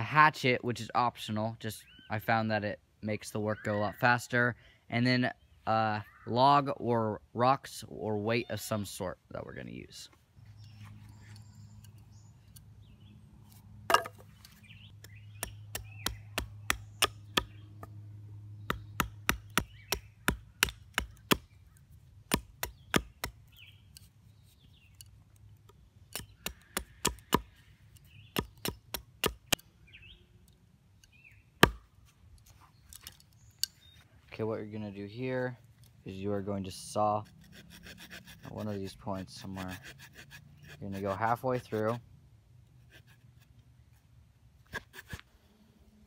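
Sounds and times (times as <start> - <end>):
hatchet chopping wood: 13.9 - 14.2, 15.0 - 17.9, 18.7 - 21.5, 22.2 - 23.6, 26.1 - 27.5, 28.3 - 29.6, 31.6 - 31.9.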